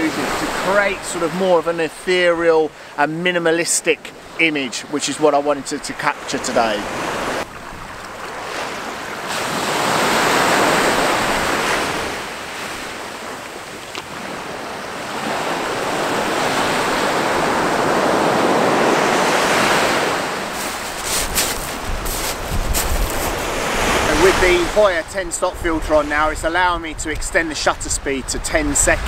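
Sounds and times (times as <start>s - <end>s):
small waves breaking on beach: 0.0s - 25.2s
wind on microphone: 20.0s - 27.4s.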